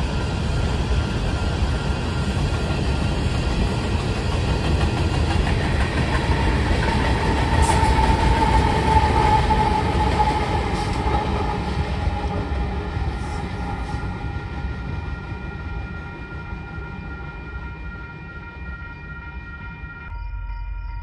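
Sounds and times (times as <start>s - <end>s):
freight train rumbling over rails: 0.0s - 19.9s
steady high tone: 5.2s - 21.0s.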